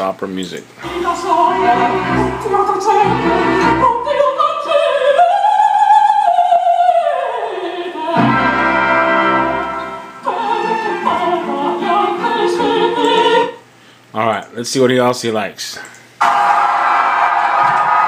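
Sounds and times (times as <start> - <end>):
opera singing with music: 0.8 - 13.7.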